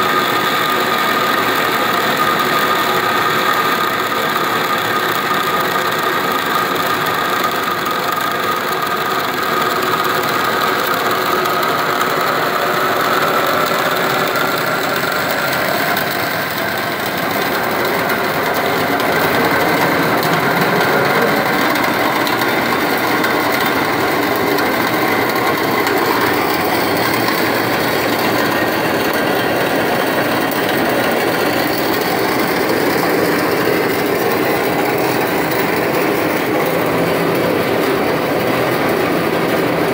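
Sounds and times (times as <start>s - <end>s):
water cavitating through pipe: 8.5s - 38.7s.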